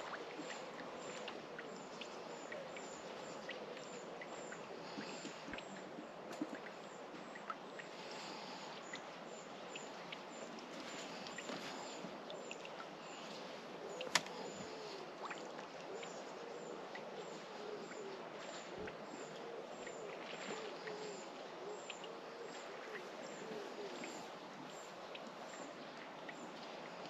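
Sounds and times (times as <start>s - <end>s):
lakeside ambience: 0.0s - 27.0s
pigeon cooing: 13.7s - 24.3s.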